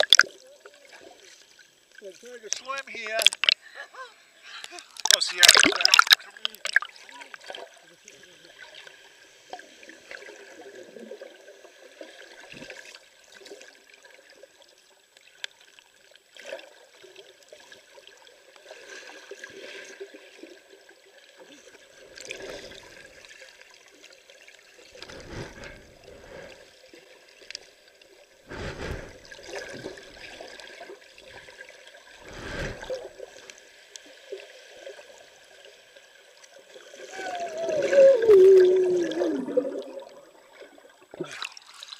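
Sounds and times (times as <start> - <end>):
muffled underwater wash: 5.4 - 41.4
water swooshes: 24.8 - 27.0, 28.5 - 30.7, 32.2 - 33.4.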